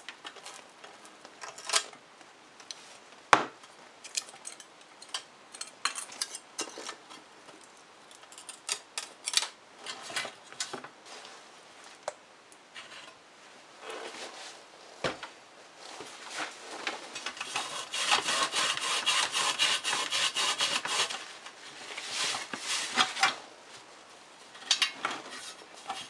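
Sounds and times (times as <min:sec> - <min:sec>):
pliers scraping metal bar: 0:17.4 - 0:21.2.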